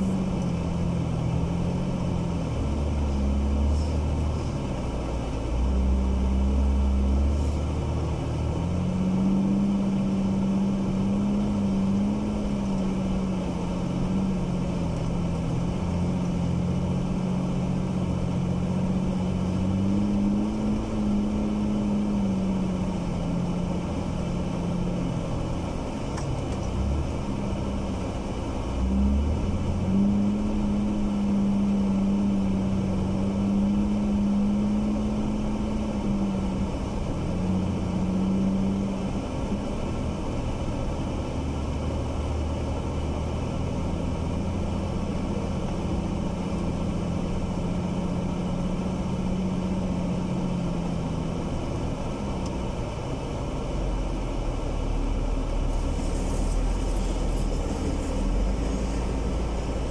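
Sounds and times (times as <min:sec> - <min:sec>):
constant rushing noise: 0:00.0 - 0:59.9
vehicle engine humming: 0:00.0 - 0:59.9.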